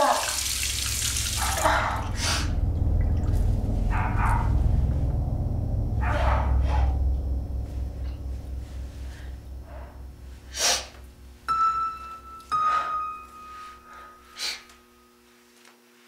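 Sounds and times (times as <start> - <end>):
low pulsing drone: 0.0 - 15.0
high ringing notes: 0.2 - 15.2.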